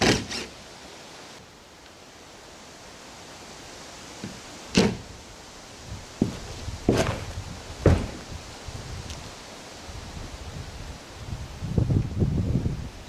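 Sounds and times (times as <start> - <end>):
steady hiss: 0.0 - 13.0
faint thump: 6.2 - 8.3
loud knock on wooden door: 7.8 - 8.2.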